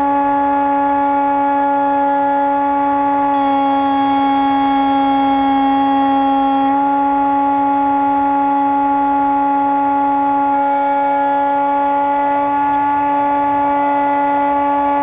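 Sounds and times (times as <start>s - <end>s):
electric motor and propeller whining: 1.6s - 15.0s.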